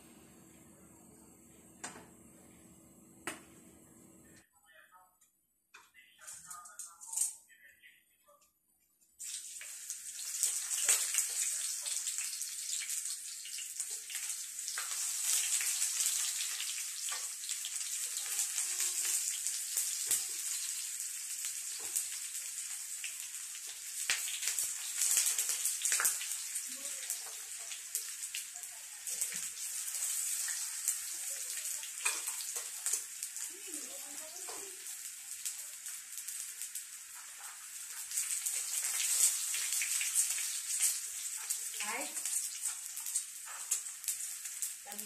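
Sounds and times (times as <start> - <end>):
eggplant frying in hot oil: 9.2 - 45.0.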